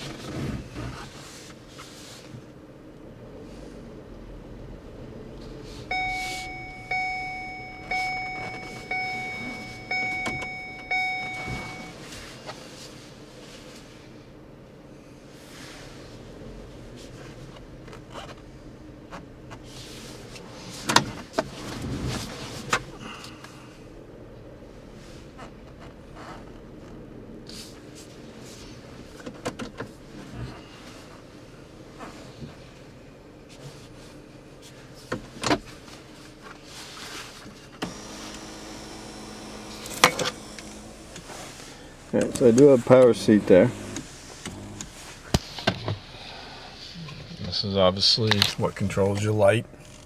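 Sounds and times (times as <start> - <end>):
power seat motor whine: 5.9 - 12.0, 37.8 - 41.8, 43.0 - 45.1
rustling: 30.0 - 47.7
seat motor stopping clunk: 37.8 - 41.3, 42.2 - 46.0.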